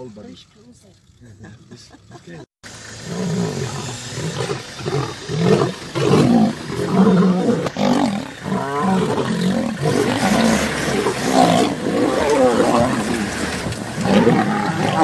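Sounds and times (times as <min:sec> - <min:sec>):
lions roaring and snarling: 0:03.0 - 0:15.0.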